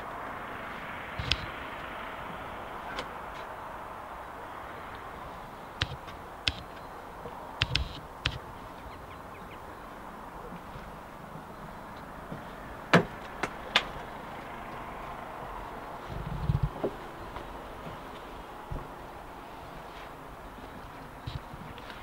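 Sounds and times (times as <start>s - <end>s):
sharp clicks and knocks: 1.2s - 1.6s, 5.8s - 6.9s, 7.6s - 8.5s.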